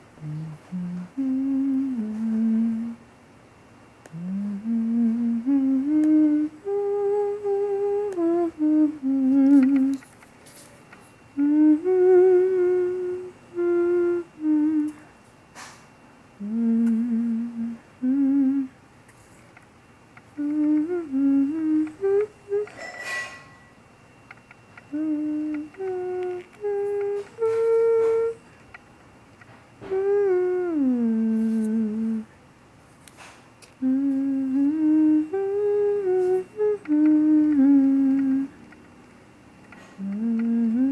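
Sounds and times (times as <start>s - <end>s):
person humming: 0.0s - 3.0s, 4.0s - 10.1s, 11.4s - 15.2s, 16.4s - 18.8s, 20.3s - 22.9s, 24.8s - 28.5s, 29.8s - 32.4s, 33.7s - 38.7s, 39.7s - 40.9s.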